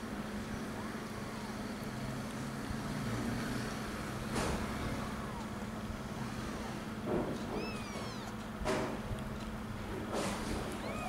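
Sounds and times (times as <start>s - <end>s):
kitten squeaking: 7.4s - 8.4s, 10.7s - 11.0s.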